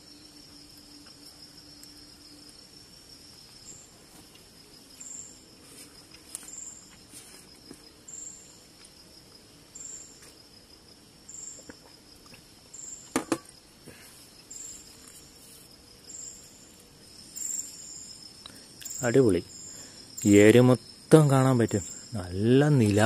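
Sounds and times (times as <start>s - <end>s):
crickets trilling: 0.0s - 23.0s.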